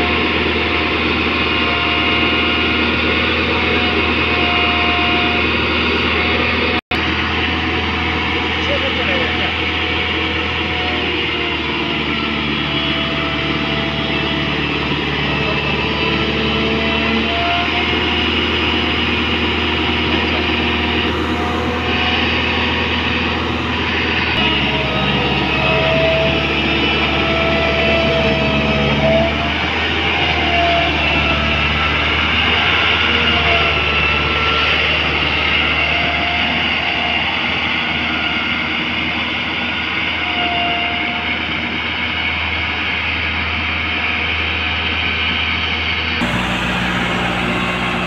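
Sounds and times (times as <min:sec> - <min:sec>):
wavering whine: 0:00.0 - 0:34.9, 0:46.2 - 0:48.0
road roller diesel engine: 0:00.0 - 0:48.0.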